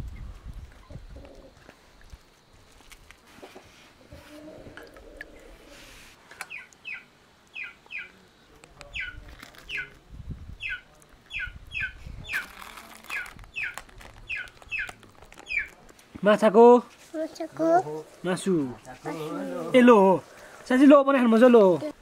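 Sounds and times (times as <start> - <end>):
bird calling with high notes: 6.5 - 8.2, 10.6 - 15.8.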